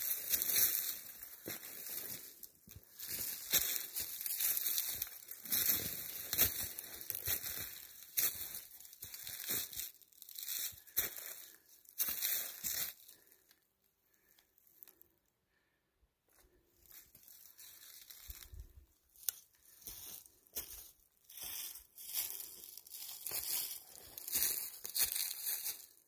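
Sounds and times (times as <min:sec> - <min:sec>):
footsteps crunching dry leaves: 0:00.0 - 0:13.4, 0:16.8 - 0:26.0.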